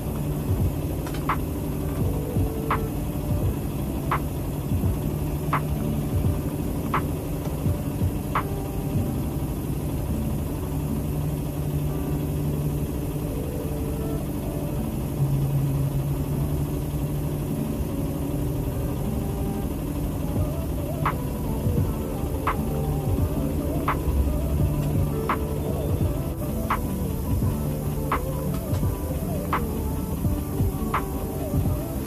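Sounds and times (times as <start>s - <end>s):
machine motor hum: 0.0s - 32.0s.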